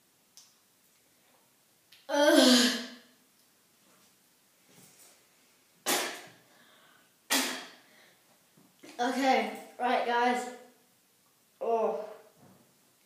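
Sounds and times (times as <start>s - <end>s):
boy gasping outburst: 2.1s - 2.9s.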